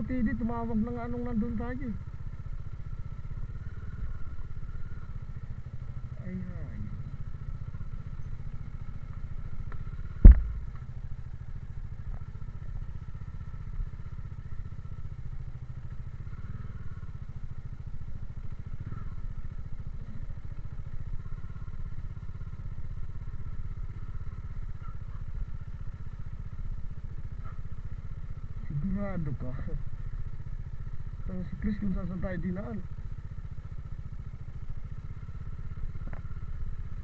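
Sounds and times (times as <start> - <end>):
motorcycle engine running: 0.0 - 37.0
loud sharp knock: 10.2 - 10.7.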